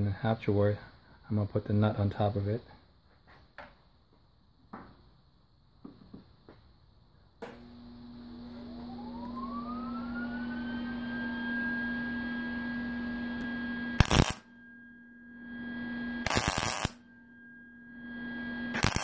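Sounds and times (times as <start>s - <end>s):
low hum: 7.5s - 19.0s
machine whine rising in pitch: 7.7s - 19.0s
welding arc crackle: 14.0s - 14.4s, 16.2s - 17.0s, 18.7s - 19.0s.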